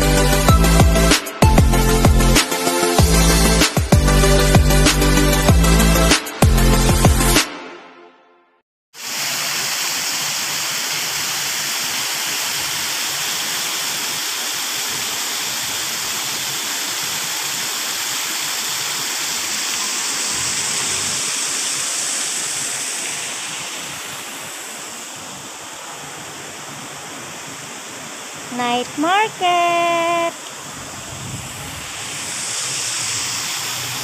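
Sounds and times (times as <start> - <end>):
fountain water splashing into pool: 9.0 - 30.7, 31.8 - 34.0.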